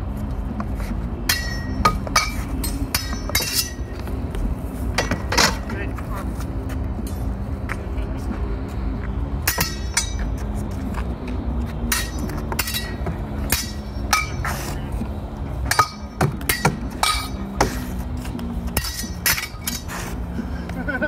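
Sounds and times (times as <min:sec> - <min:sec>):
swords clashing: 0:01.3 - 0:04.0, 0:09.4 - 0:10.3, 0:11.8 - 0:14.8, 0:15.6 - 0:17.9, 0:18.7 - 0:20.1.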